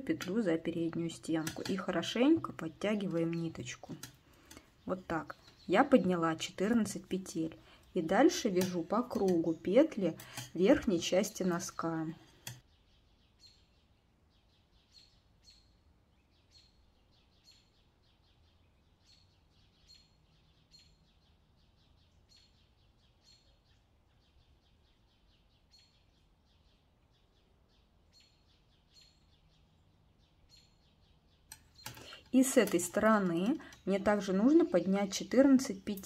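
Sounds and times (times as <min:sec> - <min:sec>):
knitting needles clicking: 0:00.0 - 0:12.6, 0:31.5 - 0:36.0.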